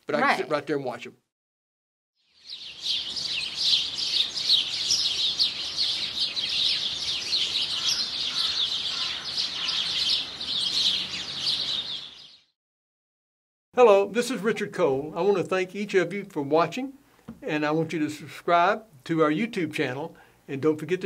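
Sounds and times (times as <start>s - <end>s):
songbirds chirping: 2.2s - 12.5s.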